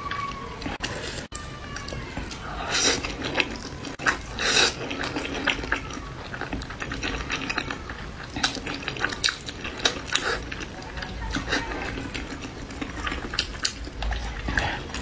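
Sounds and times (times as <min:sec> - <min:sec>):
wet chewing: 0:00.0 - 0:15.0
slurping noodles: 0:02.3 - 0:10.8.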